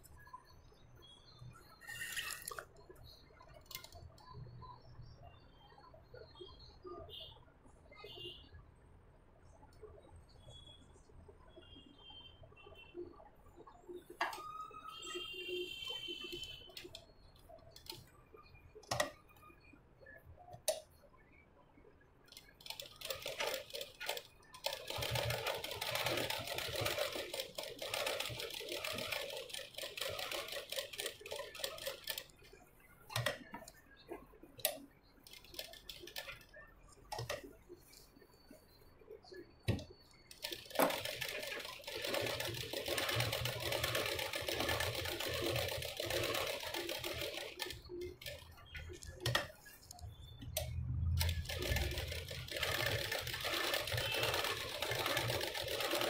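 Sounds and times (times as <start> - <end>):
sewing machine stitching: 22.3 - 32.3, 40.3 - 49.6, 50.6 - 56.0.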